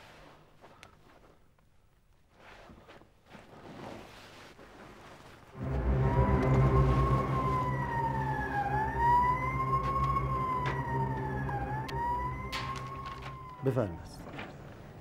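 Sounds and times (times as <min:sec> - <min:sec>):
emergency vehicle siren wailing: 0:05.6 - 0:15.0
low engine rumble: 0:05.6 - 0:15.0.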